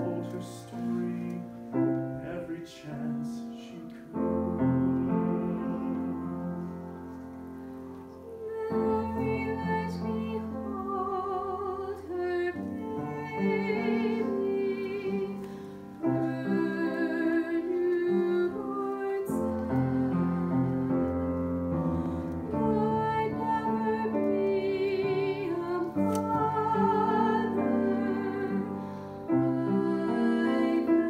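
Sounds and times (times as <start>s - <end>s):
piano accompaniment: 0.0s - 31.0s
woman singing with vibrato: 8.2s - 15.4s, 16.0s - 21.0s, 22.5s - 28.7s, 29.3s - 31.0s.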